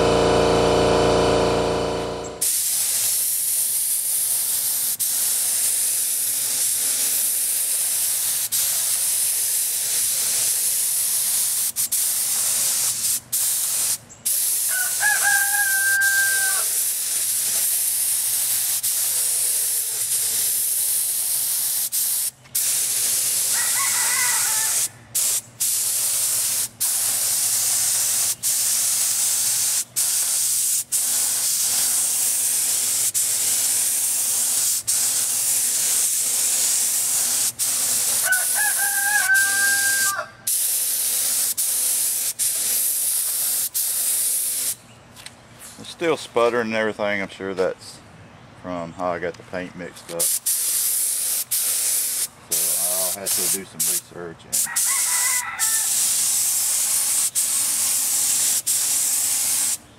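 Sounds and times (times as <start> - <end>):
paint spray gun hissing: 1.0 - 44.8, 50.1 - 59.8
short held calls: 14.6 - 16.8.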